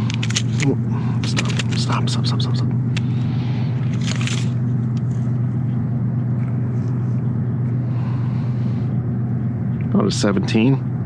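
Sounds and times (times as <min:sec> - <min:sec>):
low mechanical hum: 0:00.0 - 0:11.0
brief rustle: 0:03.9 - 0:05.2.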